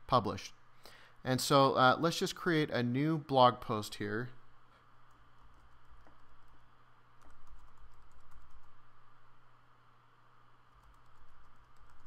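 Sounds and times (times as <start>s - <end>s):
steady low hum: 0.0s - 12.0s
typing on a keyboard: 7.2s - 8.8s, 10.8s - 12.0s.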